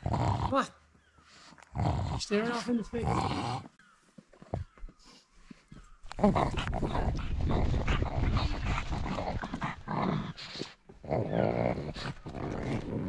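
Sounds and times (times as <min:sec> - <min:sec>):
dog breathing hard and grunting: 0:04.6 - 0:13.0.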